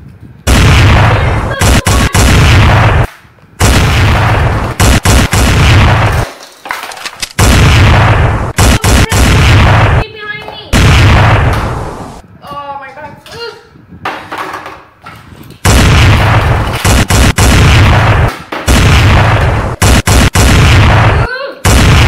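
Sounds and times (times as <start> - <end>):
rumbling explosion blasts: 0.4 - 6.3, 7.4 - 10.0, 10.7 - 12.2, 15.6 - 22.0
sharp cracks: 0.5 - 10.0, 10.8 - 12.2, 15.6 - 22.0.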